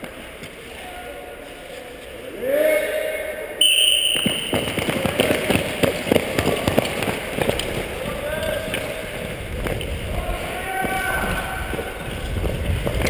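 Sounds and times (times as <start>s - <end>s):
skate blades clattering on ice: 4.0s - 13.0s.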